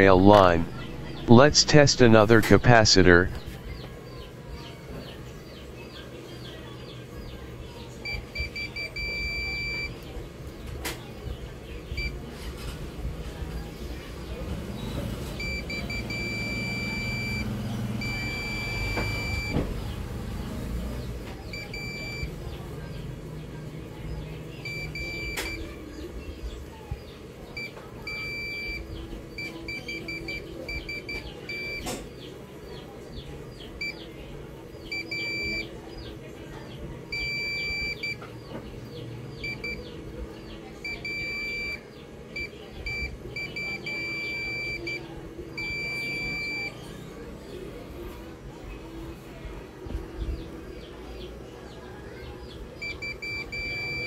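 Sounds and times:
multimeter beeping: 8.0 - 10.0, 15.4 - 19.6, 21.5 - 22.4, 24.6 - 25.7, 27.6 - 28.8, 29.4 - 31.9, 34.9 - 35.7, 37.1 - 38.2, 39.4 - 39.8, 40.8 - 41.8, 42.4 - 45.0, 45.6 - 46.7, 52.8 - 54.0.

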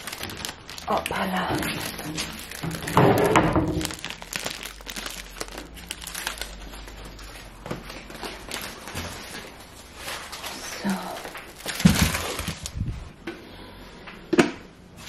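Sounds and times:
sack crinkling and rustling: 3.8 - 7.2.

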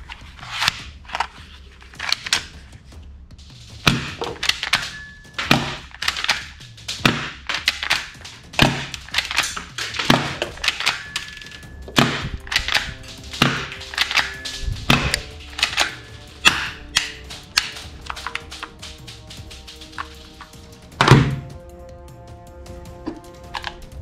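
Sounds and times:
quiet background music: 0.0 - 24.0
plastic toy clicks and snaps: 0.4 - 2.5, 5.5 - 21.2, 23.4 - 23.8.

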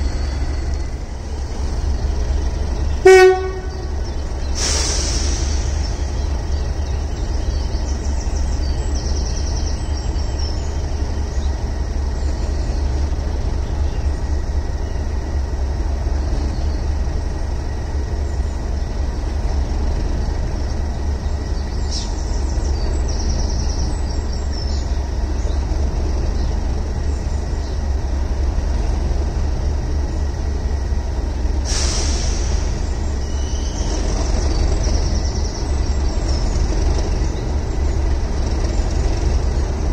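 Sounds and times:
diesel locomotive engine idling: 0.0 - 39.9
air hissing: 4.5 - 6.0, 31.6 - 32.8.

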